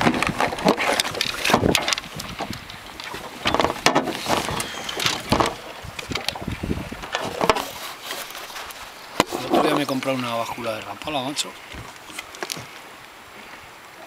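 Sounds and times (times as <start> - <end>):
knocks and clunks of gear: 0.0 - 8.3.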